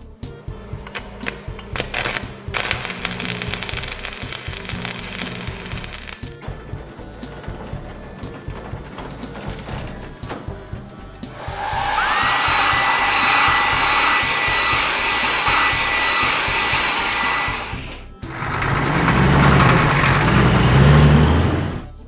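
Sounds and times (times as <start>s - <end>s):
blower hiss with rising whine: 2.7s - 6.3s, 11.3s - 18.5s
low engine rumble: 17.6s - 22.0s.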